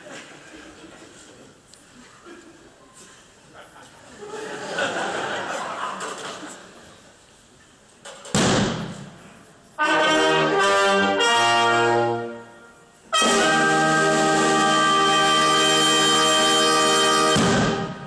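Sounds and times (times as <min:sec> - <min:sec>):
brass band playing: 0:09.8 - 0:18.0.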